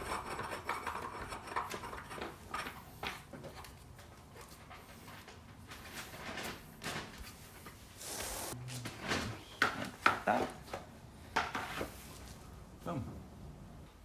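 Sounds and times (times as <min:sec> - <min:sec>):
pipe threads scraping: 0:00.0 - 0:03.8.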